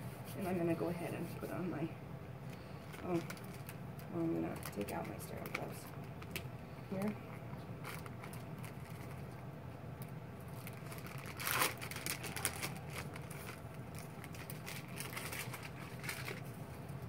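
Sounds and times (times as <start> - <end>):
paper wrapper rustling: 7.0 - 9.4, 10.5 - 17.0.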